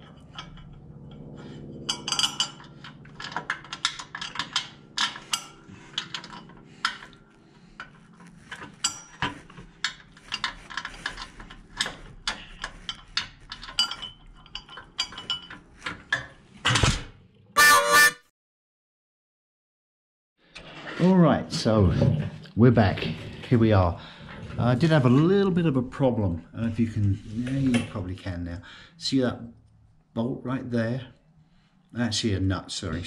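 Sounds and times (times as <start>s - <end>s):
wrench and nuts clinking on metal: 1.8s - 16.4s.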